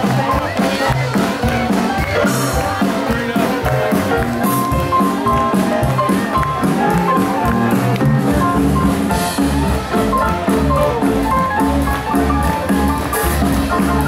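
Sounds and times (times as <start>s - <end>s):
jazz band playing: 0.0s - 14.0s
steady drum beat: 0.0s - 14.0s.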